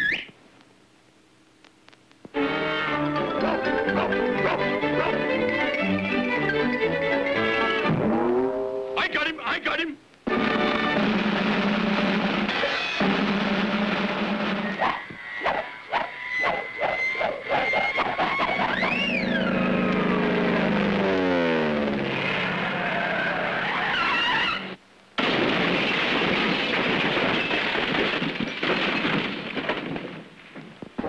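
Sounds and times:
cartoon whistle glide: 14.8 - 20.2.

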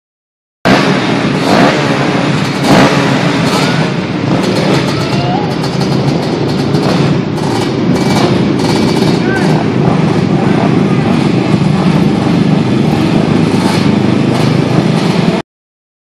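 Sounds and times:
quad engines revving: 0.7 - 15.4.

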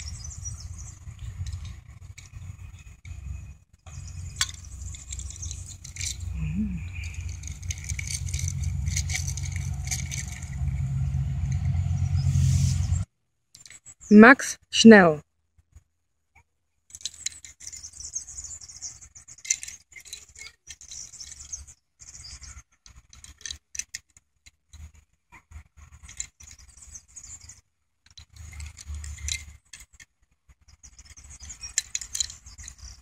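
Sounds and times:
low rumble and hiss: 0.0 - 13.2
toy car clicking and rattling: 1.2 - 3.2, 4.3 - 10.8, 16.9 - 25.1, 25.9 - 33.0.

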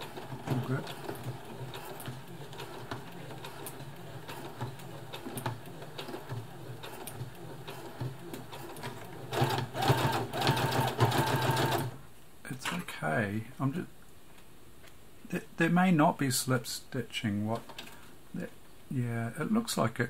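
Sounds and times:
sewing machine motor humming: 0.0 - 11.9.

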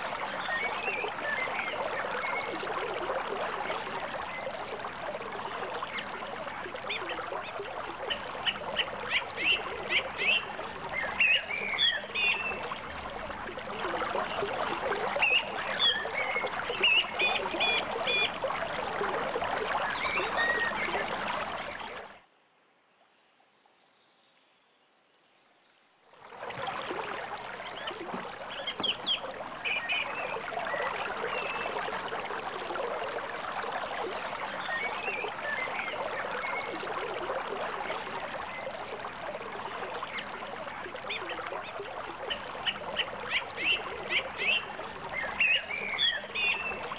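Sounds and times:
creek water rushing: 0.0 - 22.2, 26.1 - 46.9
songbirds chirping: 5.8 - 13.2, 27.5 - 31.8, 39.7 - 46.9.

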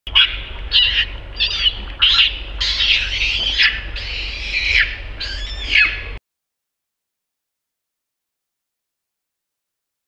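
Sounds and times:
baby monkey crying: 0.1 - 6.2.

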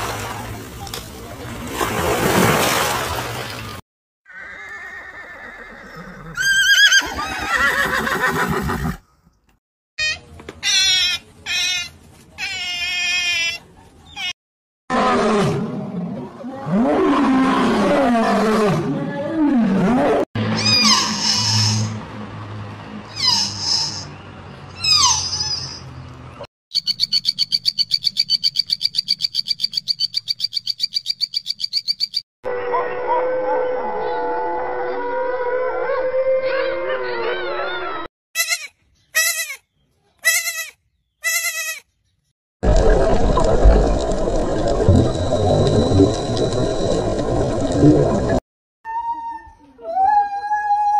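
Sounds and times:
wolf howling: 32.5 - 38.1.

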